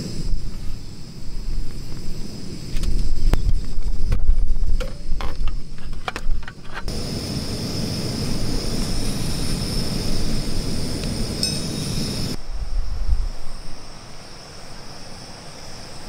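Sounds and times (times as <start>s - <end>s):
wind buffeting microphone: 0.0s - 13.8s
steady rushing noise: 6.9s - 16.0s
light metal clinks: 11.4s - 12.0s.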